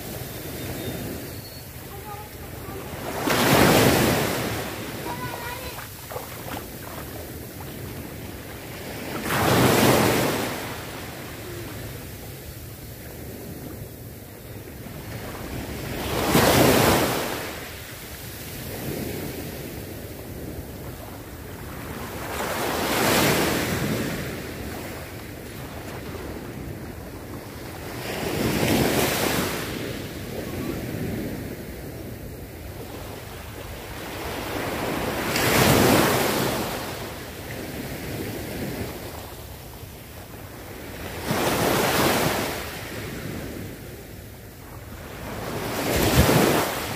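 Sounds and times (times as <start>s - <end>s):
surf hiss: 0.0s - 25.8s
small waves breaking on sand: 0.0s - 46.9s.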